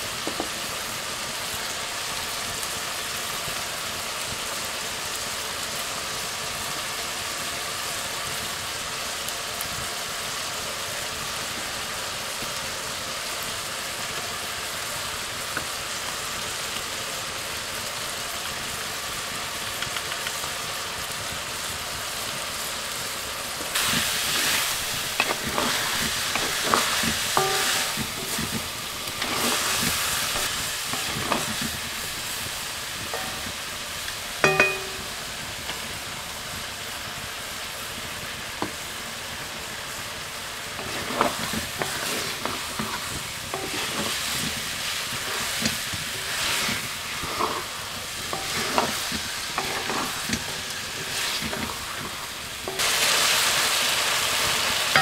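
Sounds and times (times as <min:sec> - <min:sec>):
meat and beans sizzling in a wok: 0:00.0 - 0:55.0
wooden spatula scraping a wok: 0:23.6 - 0:33.8, 0:40.6 - 0:55.0
ringing metal clank: 0:27.4 - 0:28.5, 0:33.1 - 0:33.6, 0:34.4 - 0:35.2.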